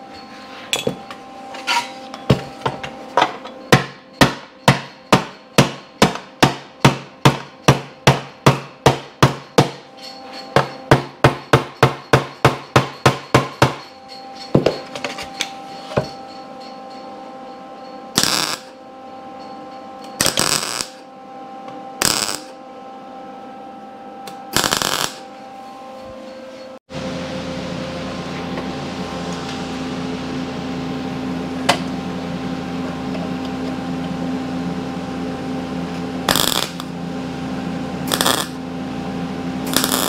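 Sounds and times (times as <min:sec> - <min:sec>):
hammer beating steel: 0:03.6 - 0:17.1
welder tacking: 0:38.1 - 0:38.6, 0:39.7 - 0:40.0.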